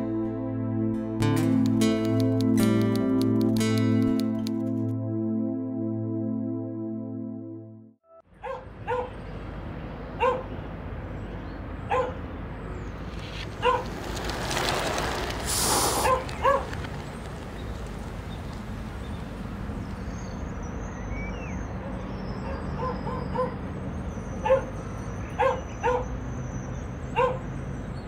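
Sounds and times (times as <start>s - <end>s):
low street hum: 8.3s - 28.0s
dog barking: 8.4s - 9.2s, 10.2s - 10.5s, 11.9s - 12.2s, 13.6s - 13.9s, 16.0s - 16.7s, 22.4s - 23.6s, 24.4s - 24.7s, 25.4s - 26.1s, 27.2s - 27.5s
brief hiss: 15.2s - 16.3s.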